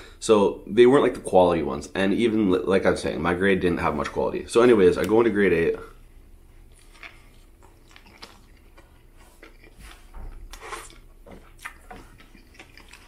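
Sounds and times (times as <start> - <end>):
mouth chewing clicks and smacks: 6.7 - 13.0.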